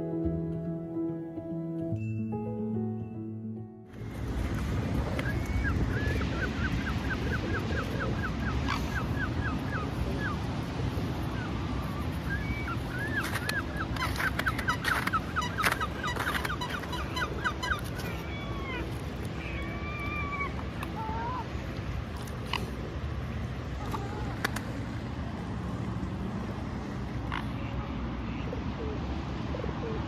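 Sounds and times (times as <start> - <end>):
steady low rumble: 3.7 - 28.4
waterfowl calling: 12.3 - 21.4.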